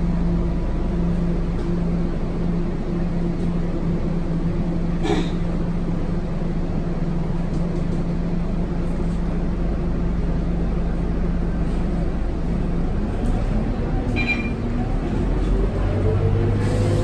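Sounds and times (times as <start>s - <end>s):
bus diesel engine idling: 0.0s - 17.0s
short high electronic beep: 14.2s - 14.6s.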